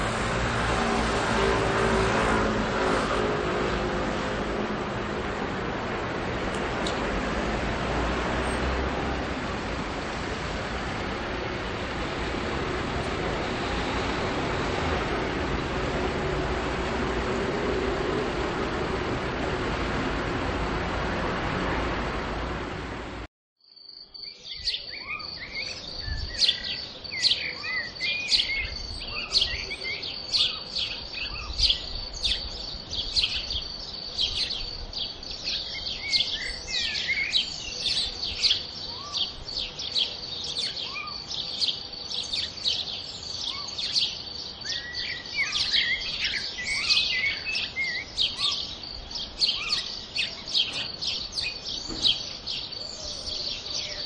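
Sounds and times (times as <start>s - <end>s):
rushing noise: 0.0s - 23.3s
birds chirping and singing: 24.2s - 54.0s.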